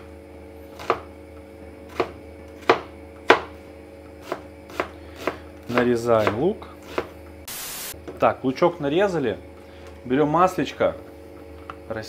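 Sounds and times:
knife chopping on cutting board: 0.8s - 1.1s, 1.9s - 7.2s.

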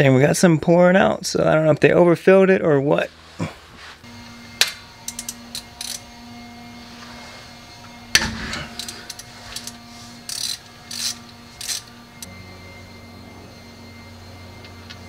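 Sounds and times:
steady low hum: 0.0s - 15.0s
ratchet wrench clicking: 4.6s - 6.0s, 8.1s - 11.9s
tool rattle: 8.2s - 11.9s.

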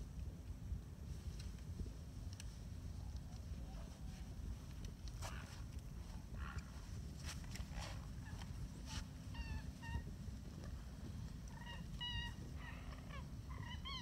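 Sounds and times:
steady low rumble: 0.0s - 14.0s
birds calling: 7.7s - 14.0s.

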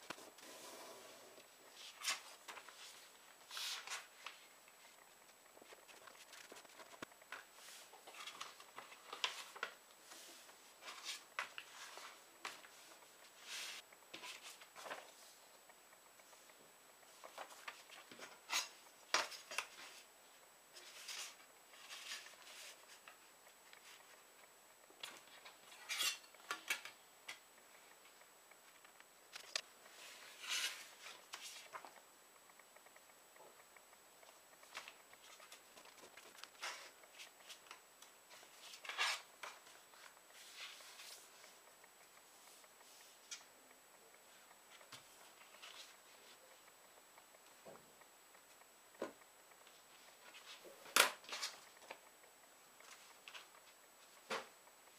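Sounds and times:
paper rustling and crinkling: 5.6s - 15.2s.

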